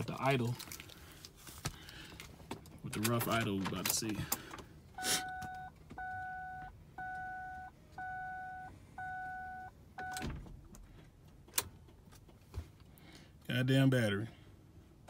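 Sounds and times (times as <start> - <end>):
car dashboard warning chime: 5.0 - 10.2.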